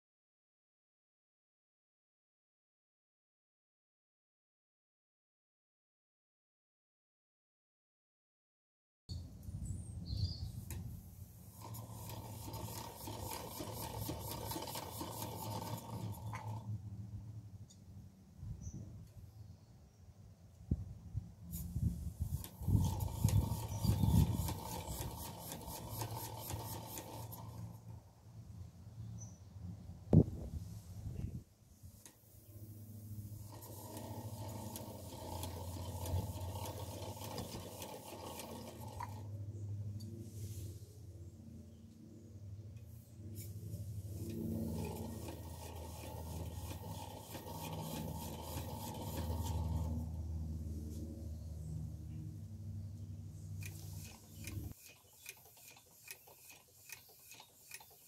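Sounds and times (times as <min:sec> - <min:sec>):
model engine whine: 0:11.4 - 0:17.0, 0:21.7 - 0:28.0, 0:32.3 - 0:40.4, 0:41.3 - 0:58.0.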